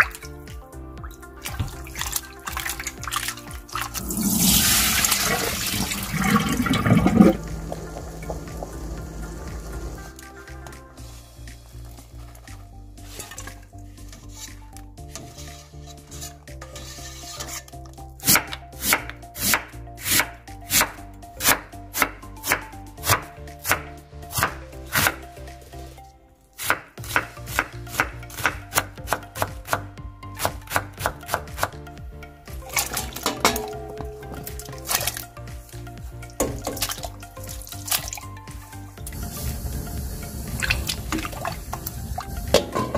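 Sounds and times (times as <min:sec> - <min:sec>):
background music: 0:00.0 - 0:42.9.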